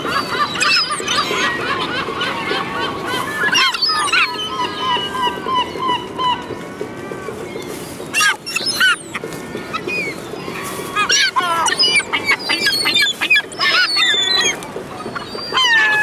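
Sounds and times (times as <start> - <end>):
young gulls calling: 0.0 - 16.0.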